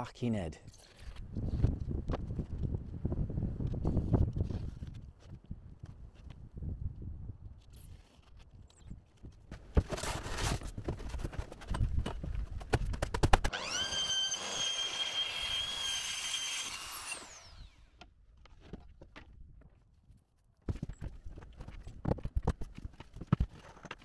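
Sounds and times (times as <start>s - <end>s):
track saw whining: 13.5s - 18.0s.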